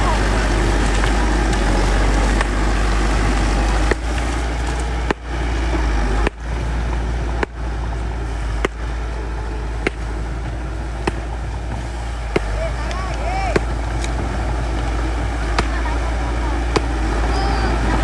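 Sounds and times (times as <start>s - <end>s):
bulldozer diesel engine running: 0.0s - 18.0s.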